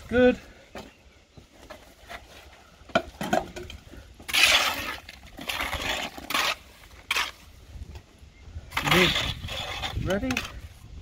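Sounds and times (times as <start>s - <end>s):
trowel scraping damp sand: 4.2s - 7.6s, 8.7s - 10.8s.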